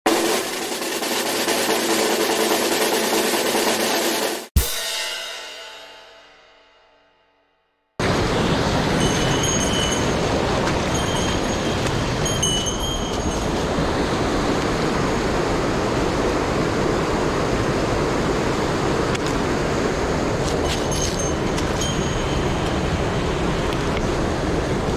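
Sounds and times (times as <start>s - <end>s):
mountain stream rushing: 8.0s - 24.9s.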